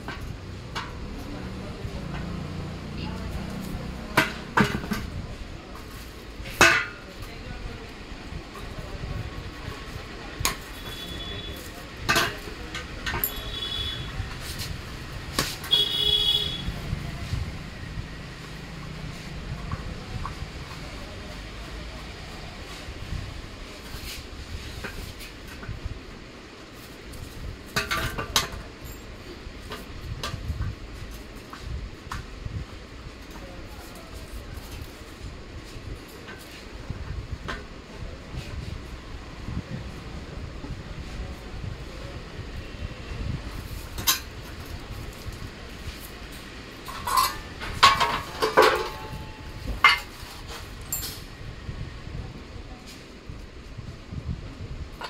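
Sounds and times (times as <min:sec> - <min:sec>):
low background noise: 0:00.0 - 0:55.0
metal clanks on concrete: 0:03.6 - 0:07.2, 0:10.4 - 0:14.0, 0:27.7 - 0:30.4, 0:43.8 - 0:46.1, 0:46.8 - 0:51.3
metal parts clinking: 0:46.8 - 0:49.2.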